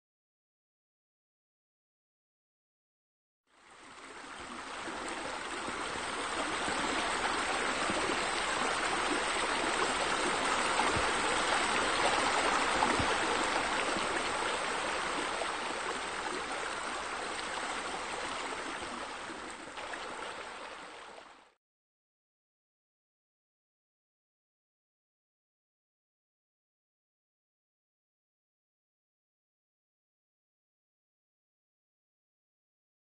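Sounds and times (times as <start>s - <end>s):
flowing water rushing: 3.6s - 21.6s.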